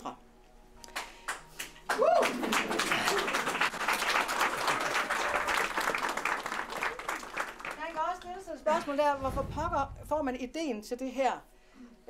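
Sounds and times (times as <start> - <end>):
audience applauding: 1.0 - 8.4.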